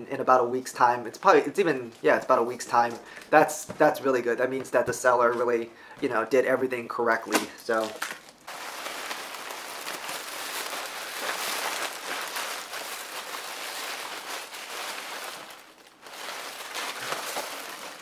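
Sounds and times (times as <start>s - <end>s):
packaging rustling and crinkling: 7.6s - 18.0s.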